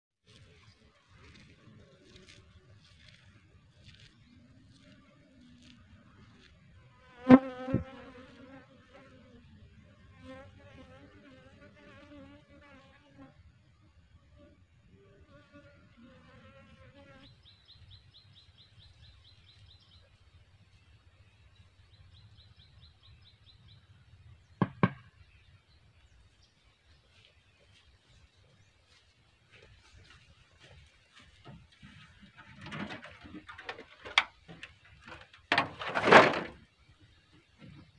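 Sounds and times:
sharp knocks: 0:24.6 - 0:25.1.

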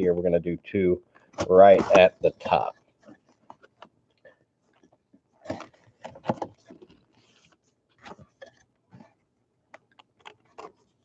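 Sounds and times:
papery rustle: 0:04.8 - 0:09.1.

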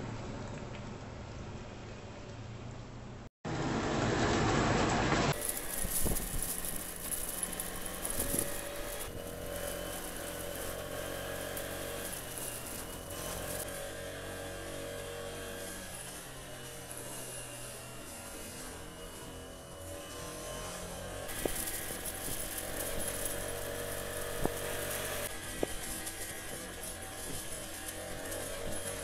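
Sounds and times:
vehicle road noise: 0:00.0 - 0:05.6
loud even hiss: 0:05.3 - 0:13.7, 0:21.3 - 0:26.1.

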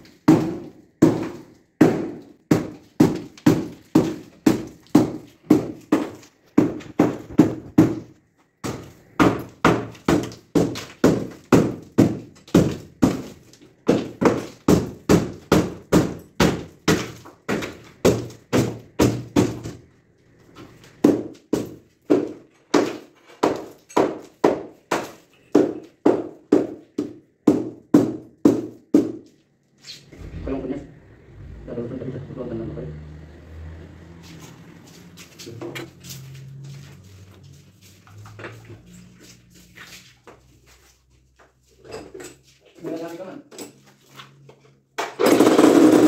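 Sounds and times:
hammer striking masonry: 0:00.0 - 0:19.9, 0:21.0 - 0:29.3.

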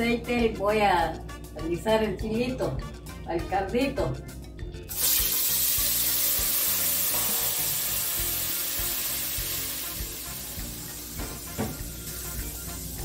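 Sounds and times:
sauce sizzling in hot oil: 0:04.9 - 0:13.0.

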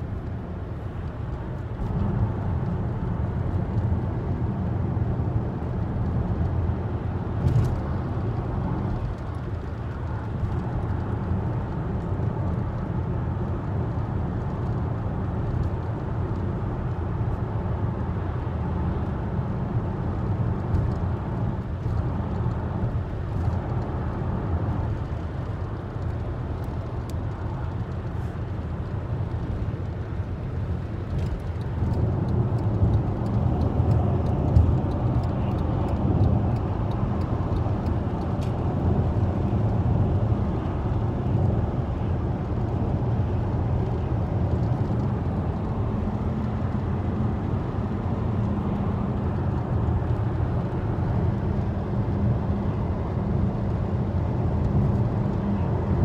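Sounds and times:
car cabin road rumble: 0:00.0 - 0:56.0.

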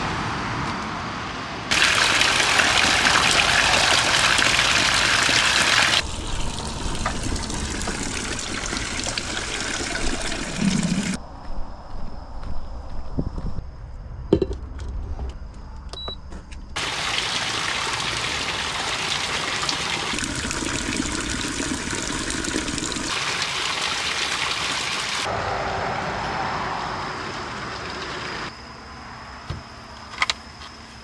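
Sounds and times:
water pouring into plastic jug: 0:01.7 - 0:11.2, 0:16.8 - 0:24.8.

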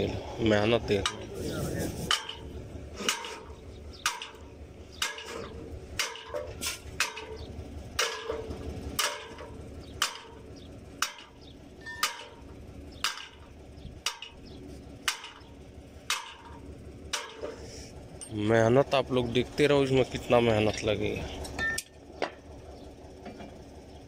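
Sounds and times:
low steady rumble: 0:00.0 - 0:24.0
hammer clanking on steel pipe: 0:02.1 - 0:04.4, 0:05.0 - 0:12.4, 0:13.0 - 0:14.4, 0:15.0 - 0:15.5, 0:16.1 - 0:17.6.

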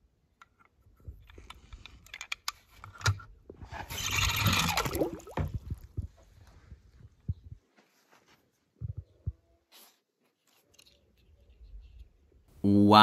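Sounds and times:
plastic toy cars clicking: 0:00.4 - 0:03.2.

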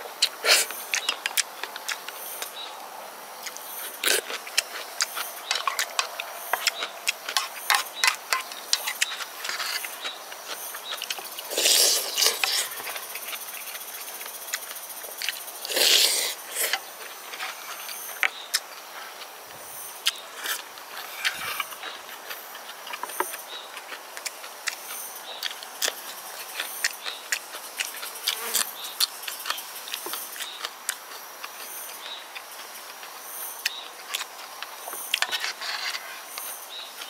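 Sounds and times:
wet chewing: 0:00.2 - 0:02.6, 0:03.4 - 0:18.7, 0:20.0 - 0:35.4
slurping broth from spoon: 0:11.5 - 0:12.8, 0:15.6 - 0:16.8.

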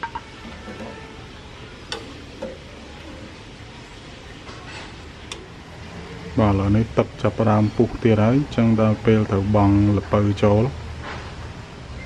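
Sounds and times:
metal ladle clinking in pot: 0:00.0 - 0:03.1
soup simmering with hiss: 0:00.0 - 0:09.7.

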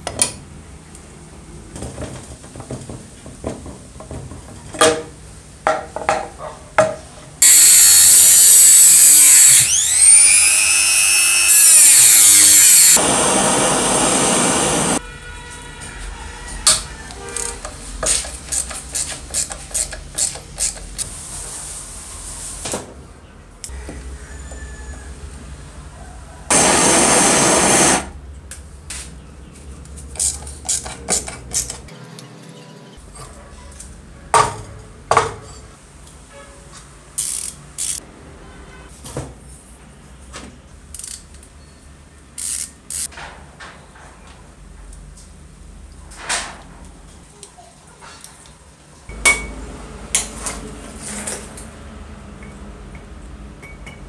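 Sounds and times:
ratchet driver clicking: 0:37.2 - 0:38.0.

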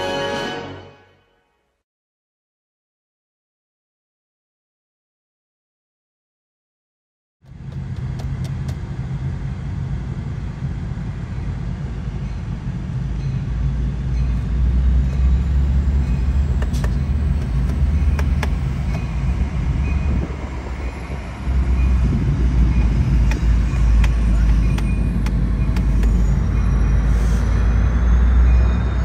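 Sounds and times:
diesel locomotive rumble: 0:07.4 - 0:29.0.

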